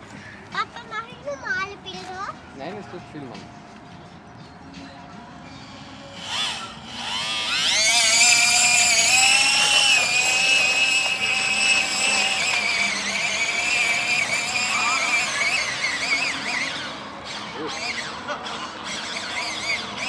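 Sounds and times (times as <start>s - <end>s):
model boat motor whining: 5.5s - 20.0s.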